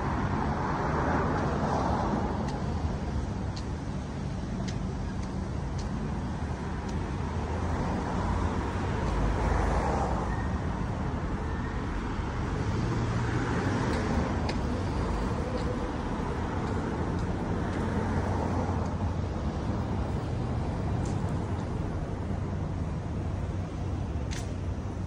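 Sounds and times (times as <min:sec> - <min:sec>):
cars passing on street: 0:00.0 - 0:25.0.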